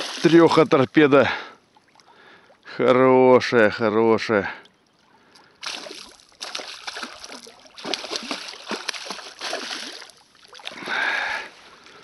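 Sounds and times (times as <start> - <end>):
fish thrashing and splashing: 0.0 - 0.8, 5.6 - 11.2.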